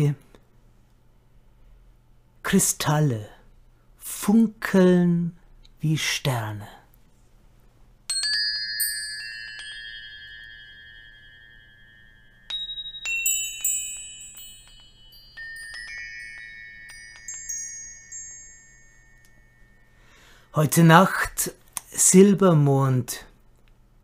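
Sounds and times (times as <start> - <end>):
metal chimes ringing: 8.1 - 20.8.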